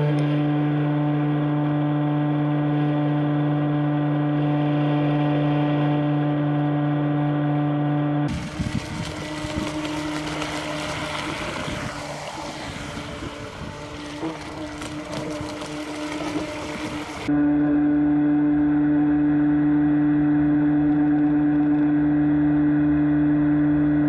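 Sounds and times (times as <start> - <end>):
wind: 0.0 - 24.0
water spray hissing: 8.3 - 17.3
electric motors whining: 8.3 - 17.4.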